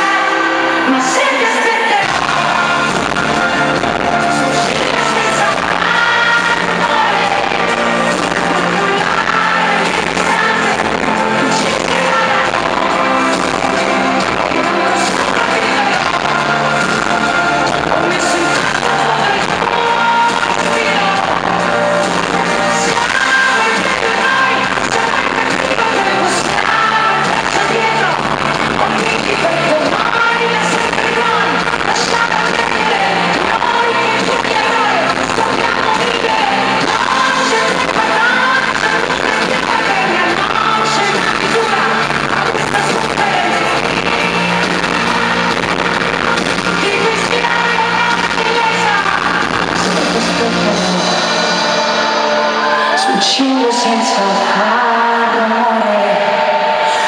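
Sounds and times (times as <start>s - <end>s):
live pop band playing: 0.0s - 57.0s
woman singing into microphone: 0.0s - 57.0s.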